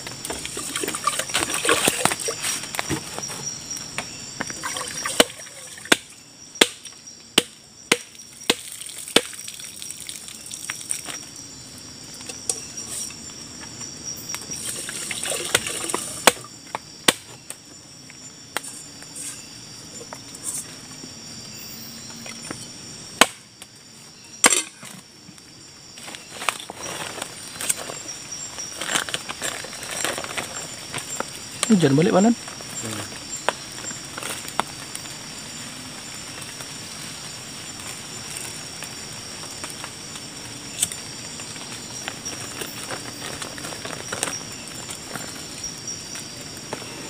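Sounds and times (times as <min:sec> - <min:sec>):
night insects chirring: 0:00.0 - 0:47.0
water pouring into metal pot: 0:04.6 - 0:05.9, 0:14.6 - 0:16.2.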